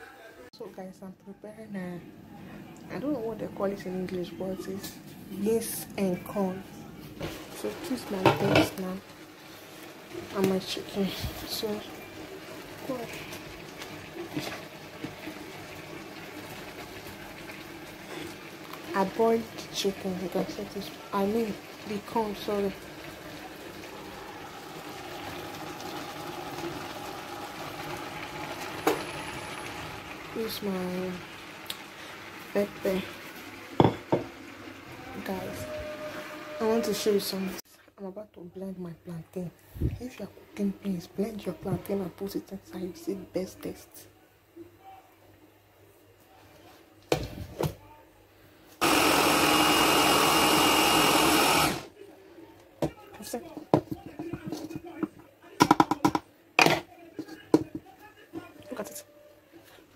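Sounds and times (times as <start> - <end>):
electric chopper motor running: 48.8 - 51.9.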